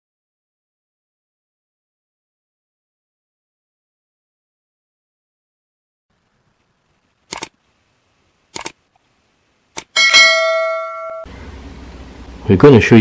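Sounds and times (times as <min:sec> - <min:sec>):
mouse clicks: 0:08.6 - 0:08.8
bell notification chime: 0:10.0 - 0:11.3.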